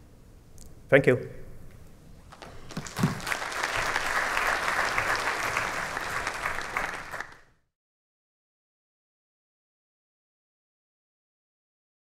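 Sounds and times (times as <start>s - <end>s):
audience applauding: 2.3s - 7.6s.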